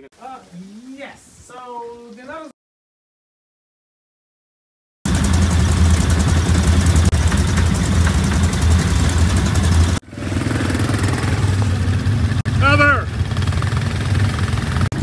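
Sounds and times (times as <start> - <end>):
atv engines running: 5.1 - 15.0.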